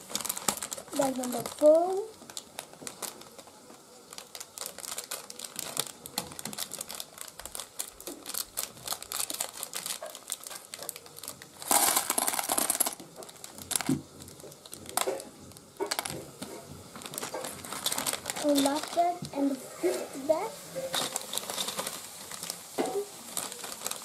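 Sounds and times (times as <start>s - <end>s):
plastic bag crinkling: 0.0s - 24.0s
scissors cutting plastic: 4.2s - 20.0s, 20.8s - 24.0s
plastic bricks clattering into tub: 11.6s - 16.2s, 17.0s - 19.2s, 20.8s - 24.0s.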